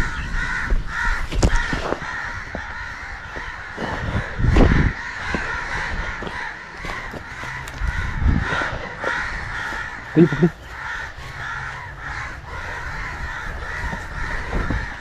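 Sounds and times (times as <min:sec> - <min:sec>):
crows cawing: 0:00.0 - 0:15.0
footsteps through grass: 0:04.5 - 0:08.2.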